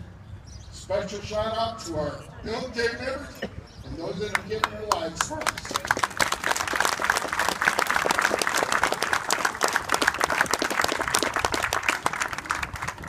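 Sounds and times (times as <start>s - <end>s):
crowd applauding: 4.3s - 13.0s.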